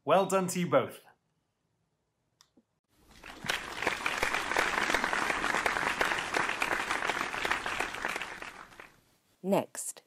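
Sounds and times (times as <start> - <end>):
audience clapping: 3.0 - 9.0.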